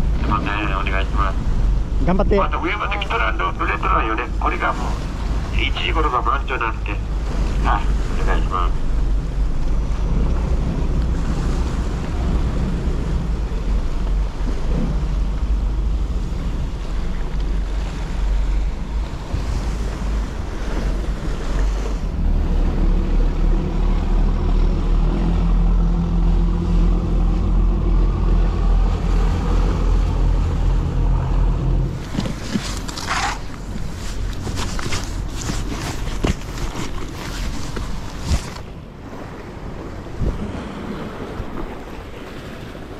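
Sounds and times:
waves washing against rocks: 0:00.0 - 0:31.2, 0:31.8 - 0:42.9
boat engine drone: 0:00.0 - 0:42.9
wind on microphone: 0:07.1 - 0:42.9
handling rustle: 0:31.9 - 0:38.7.

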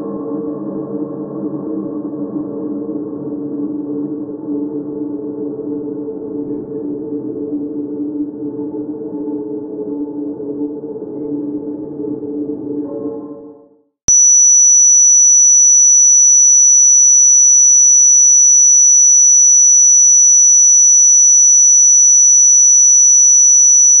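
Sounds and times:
high-pitched electronic tone: 0:14.1 - 0:24.0.

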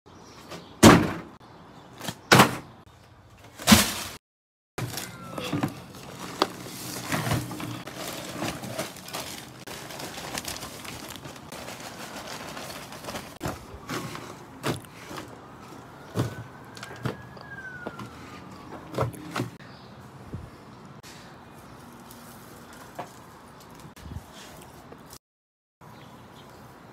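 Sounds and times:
soil rustling and scraping in plastic: 0:04.8 - 0:15.4.

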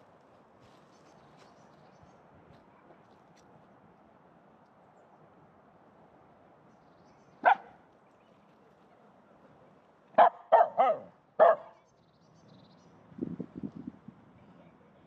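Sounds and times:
dog barking: 0:07.4 - 0:07.8, 0:10.2 - 0:11.8.

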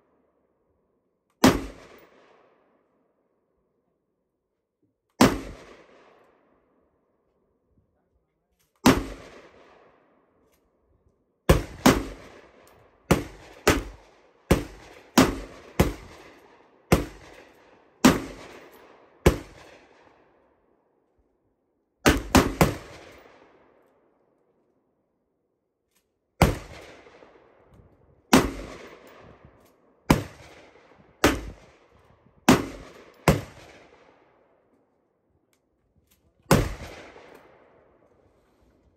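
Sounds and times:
rifle gunshots with ringing echo: 0:01.4 - 0:02.6, 0:05.2 - 0:06.5, 0:08.8 - 0:10.2, 0:11.5 - 0:20.4, 0:22.0 - 0:23.8, 0:26.4 - 0:27.6, 0:28.3 - 0:34.4, 0:36.5 - 0:38.0.

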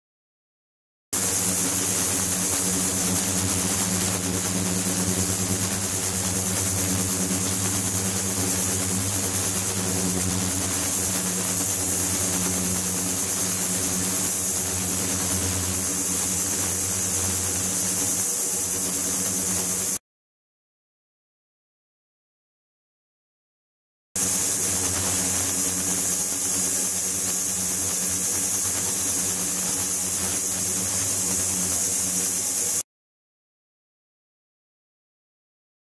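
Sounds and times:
thin high whine: 0:01.2 - 0:20.0, 0:24.2 - 0:32.8
ultrasonic tank buzz and hiss: 0:01.2 - 0:20.0, 0:24.2 - 0:32.8.

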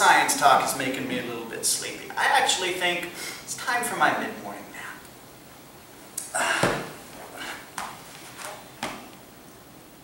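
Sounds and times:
body thumping onto nails: 0:06.5 - 0:07.0
clothing rustle: 0:06.8 - 0:09.1.

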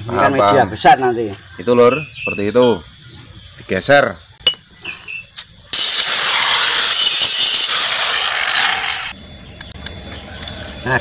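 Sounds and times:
angle grinder grinding metal: 0:05.7 - 0:09.2.

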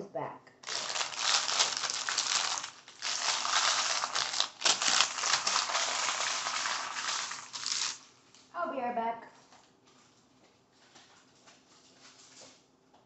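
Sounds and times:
plastic pouches crinkling: 0:00.6 - 0:08.1.

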